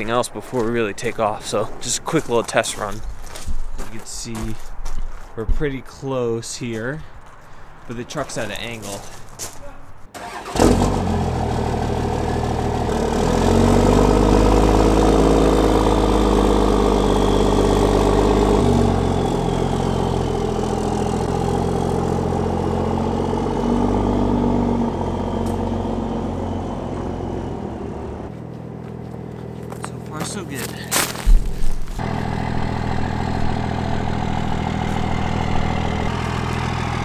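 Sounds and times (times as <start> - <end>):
truck engine pulling away: 10.2 - 37.0.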